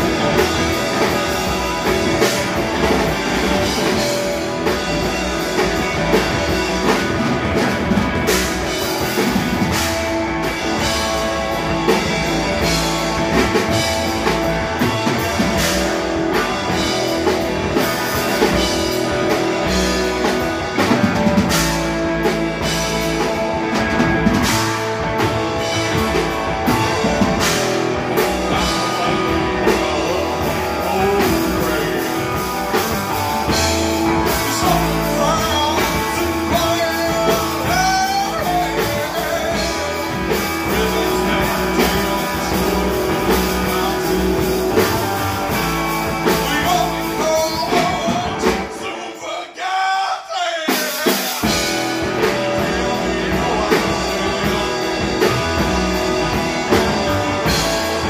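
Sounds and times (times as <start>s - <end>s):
distorted electric guitar: 0.0s - 48.8s, 51.0s - 58.0s
drum kit: 0.0s - 49.2s, 50.7s - 58.0s
man singing: 26.9s - 58.0s.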